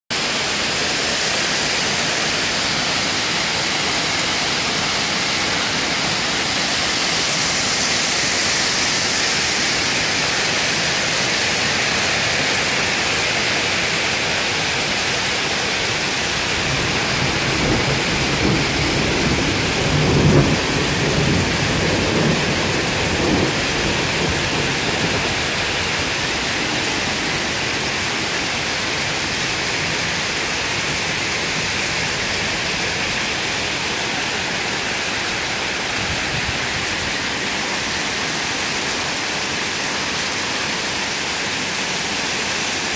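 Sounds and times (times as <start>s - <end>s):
heavy rain pouring: 0.1s - 42.9s
water streaming off roof: 0.1s - 42.9s
thunder rumbling: 16.3s - 33.9s.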